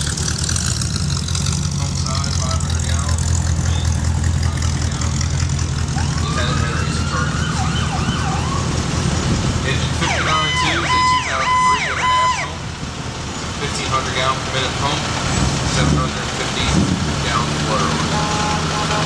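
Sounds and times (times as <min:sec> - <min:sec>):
diesel engines rumbling: 0:00.0 - 0:19.0
faint siren wailing: 0:05.9 - 0:09.0, 0:09.9 - 0:12.8
loud electronic siren: 0:05.9 - 0:09.0, 0:09.8 - 0:12.8.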